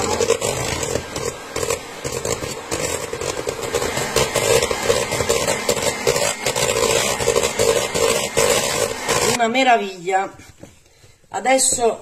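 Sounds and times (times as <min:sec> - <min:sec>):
electric hand mixer running: 0:00.0 - 0:09.4.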